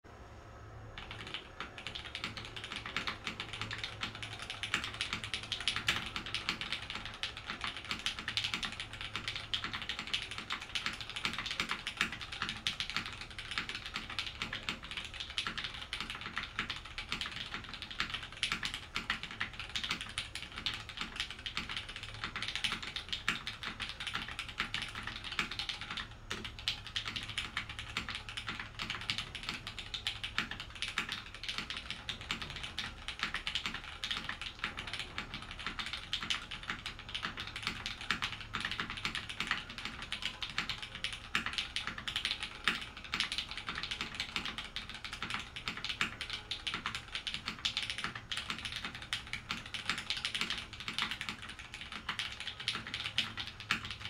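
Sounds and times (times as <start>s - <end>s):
mechanical keyboard typing: 0.9s - 54.0s.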